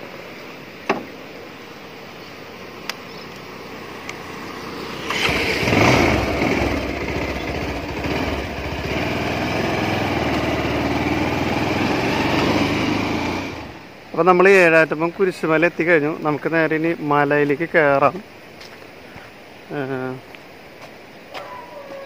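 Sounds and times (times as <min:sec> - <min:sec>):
motorcycle engine running: 0:04.2 - 0:13.9.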